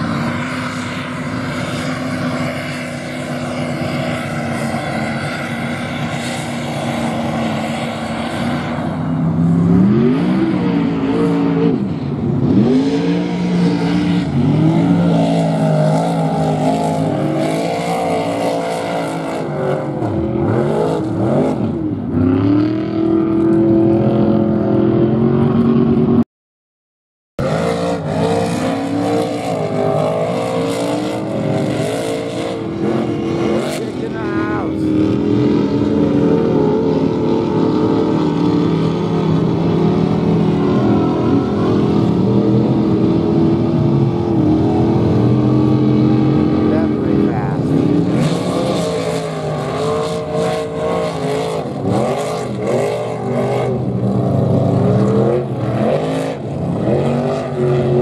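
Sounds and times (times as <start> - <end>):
truck engine revving: 0.0 - 26.2, 27.4 - 58.0.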